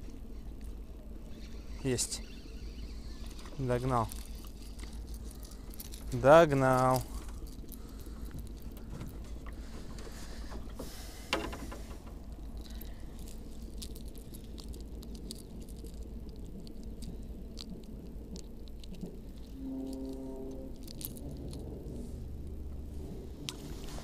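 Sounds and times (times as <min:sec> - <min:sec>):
low steady rumble: 0:00.0 - 0:24.0.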